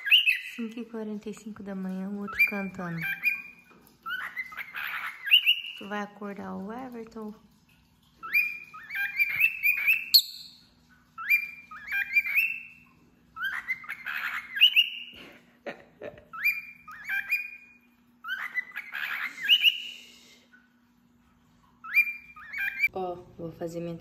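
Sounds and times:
cockatiel whistling: 0:08.2 - 0:10.6.

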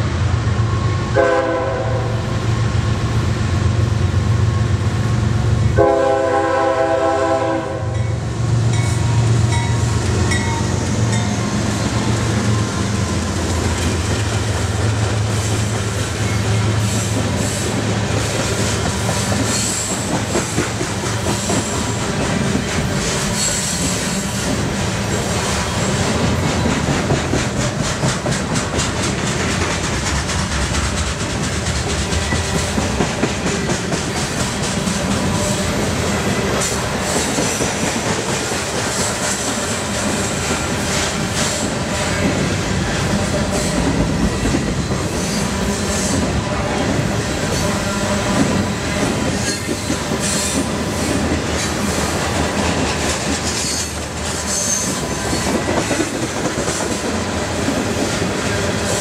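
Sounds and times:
train wheels rumbling on rail: 0:00.0 - 0:59.0
wheels clicking over rail joints: 0:26.1 - 0:35.7.

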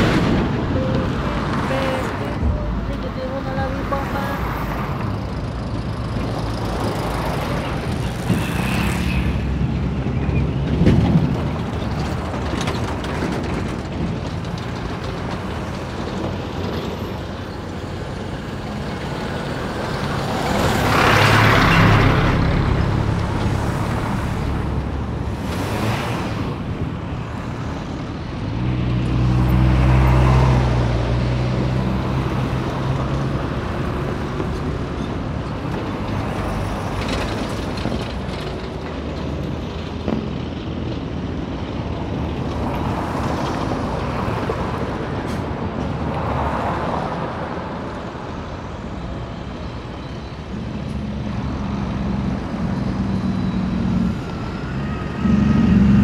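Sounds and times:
vehicles driving past: 0:00.0 - 0:56.0
deep engine drone: 0:51.5 - 0:56.0.

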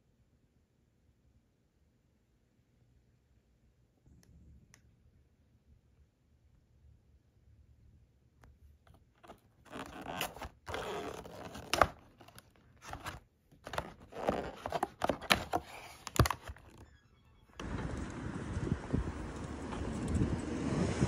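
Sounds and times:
paper bag rustling: 0:09.2 - 0:16.8.

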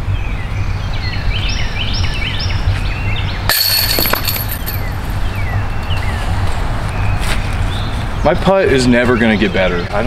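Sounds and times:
birds chirping: 0:00.0 - 0:10.0
metal chains jingling: 0:03.5 - 0:05.2.

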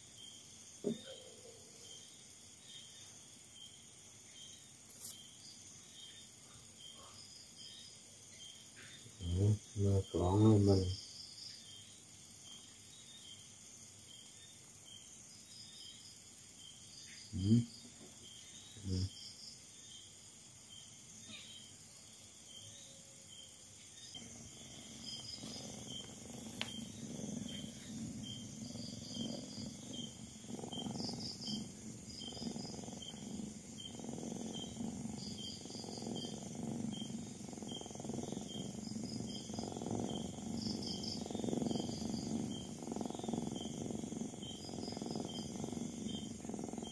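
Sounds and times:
crickets chirping: 0:00.0 - 0:46.9
cat purring: 0:09.2 - 0:11.0, 0:24.2 - 0:46.9.

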